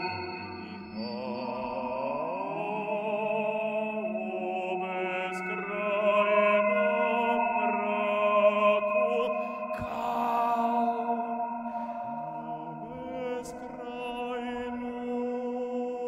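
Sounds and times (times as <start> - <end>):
layered sung tones: 0.0 - 16.0.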